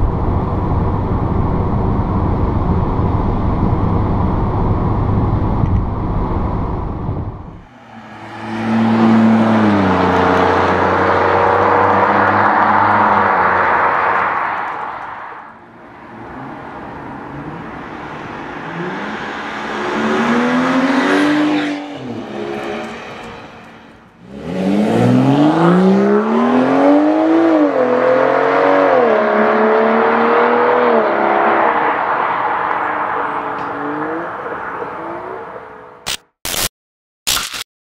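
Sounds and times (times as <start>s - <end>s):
car exhaust accelerating past: 6.7s - 15.1s.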